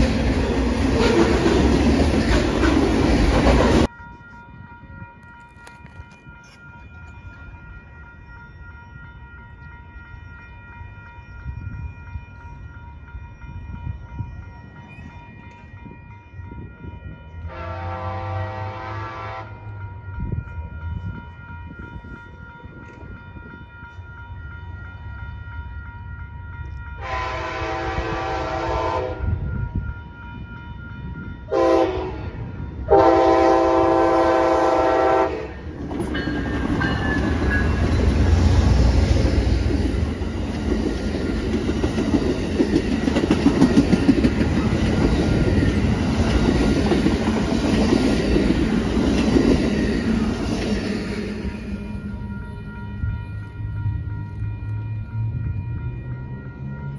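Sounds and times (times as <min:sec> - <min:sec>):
crossing bell ringing: 0:00.0 - 0:56.9
train rumbling past: 0:00.0 - 0:56.9
locomotive horn blasts: 0:17.4 - 0:19.7, 0:27.0 - 0:29.4, 0:31.5 - 0:35.6
wheels clacking over rail joints: 0:35.7 - 0:51.0.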